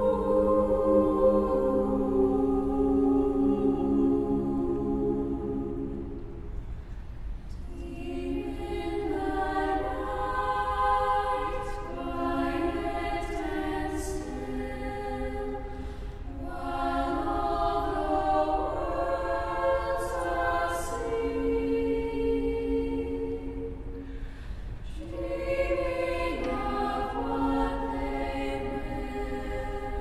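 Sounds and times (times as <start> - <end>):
choir singing: 0.0 - 6.6, 7.5 - 24.2, 24.8 - 30.0
singer breath: 15.7 - 16.3, 23.9 - 24.9.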